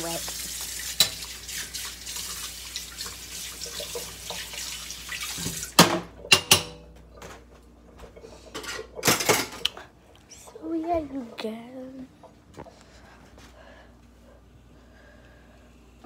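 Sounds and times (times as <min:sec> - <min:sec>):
tap water running: 0:00.0 - 0:12.8.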